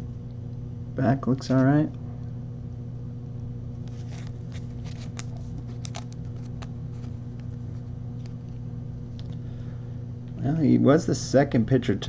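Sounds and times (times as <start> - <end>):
steady low hum: 0.0 - 12.0
cards clicking and rustling: 3.9 - 7.6.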